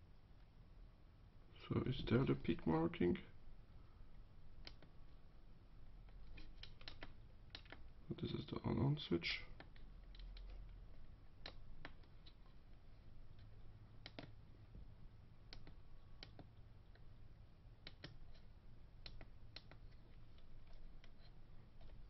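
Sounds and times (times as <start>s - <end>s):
small buttons clicking: 4.6s - 4.9s, 6.3s - 7.8s, 14.0s - 14.4s, 15.5s - 17.0s, 17.8s - 22.0s.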